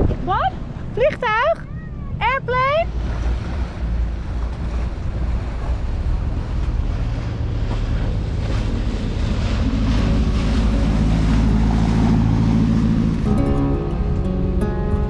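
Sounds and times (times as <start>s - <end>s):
boat engine drone: 0.0s - 15.0s
rushing water: 0.0s - 15.0s
wind buffeting microphone: 0.0s - 15.0s
wake splashing: 2.8s - 13.4s.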